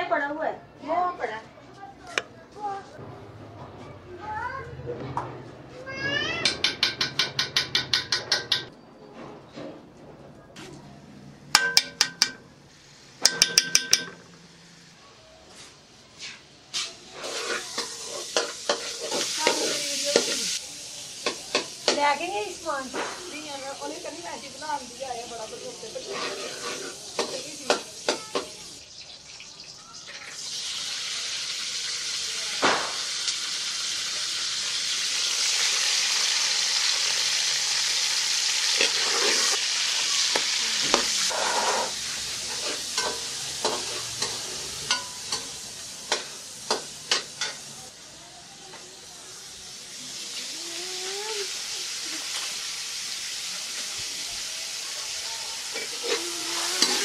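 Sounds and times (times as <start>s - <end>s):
metal spoon clinking on pot: 6.4s - 8.7s, 11.5s - 12.5s, 13.2s - 14.4s, 43.0s - 45.5s
food frying in hot oil: 16.7s - 57.0s.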